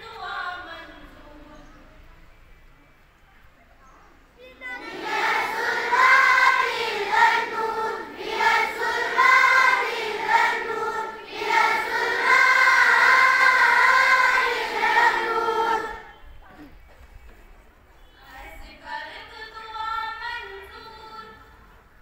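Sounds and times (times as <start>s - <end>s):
children singing in unison: 4.6s - 16.2s.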